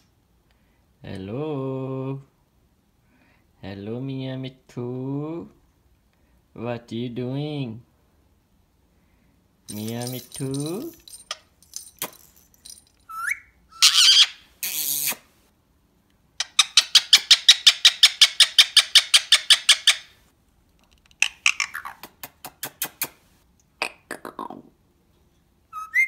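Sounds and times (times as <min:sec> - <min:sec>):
parakeet calling: 0:13.1 - 0:15.2, 0:21.2 - 0:22.0.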